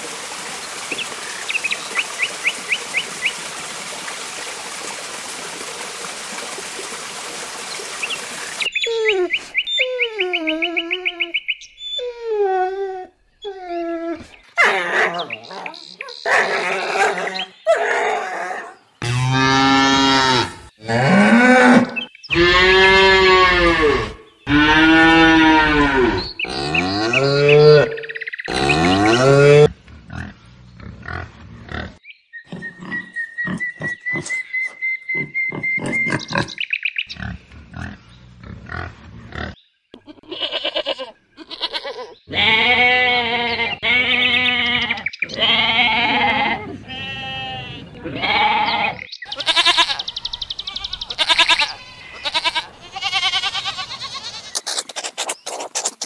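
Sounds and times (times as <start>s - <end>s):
cow mooing: 19.0s - 27.9s
goat kid bleating: 40.0s - 54.7s.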